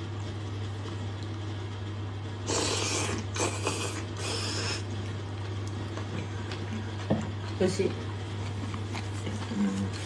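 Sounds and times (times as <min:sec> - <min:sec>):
low electrical hum: 0:00.0 - 0:10.0
person slurping noodles: 0:02.4 - 0:04.9.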